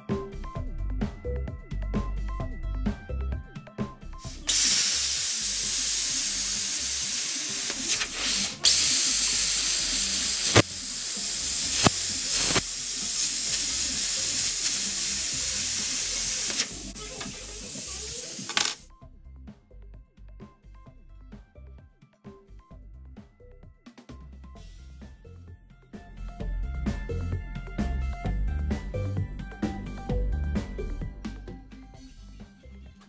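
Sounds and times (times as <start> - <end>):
plasma cutter hissing: 4.2 - 18.8.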